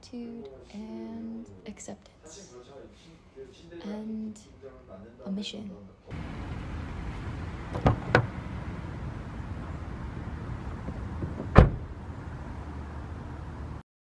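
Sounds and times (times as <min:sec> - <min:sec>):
car door handle and latch clicking: 0:07.7 - 0:08.3
car door shutting with thud: 0:07.7 - 0:08.4, 0:10.8 - 0:11.9.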